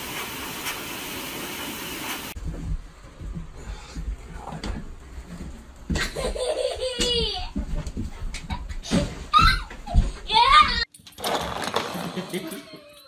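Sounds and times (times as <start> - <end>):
young child laughing and squealing: 6.2 - 7.5, 9.3 - 10.9, 12.4 - 13.0.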